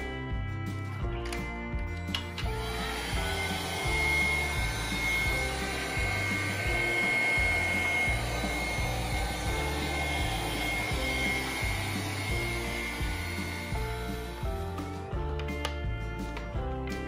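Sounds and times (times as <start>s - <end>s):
background music with bass: 0.0s - 17.0s
handheld vacuum running: 2.3s - 15.3s.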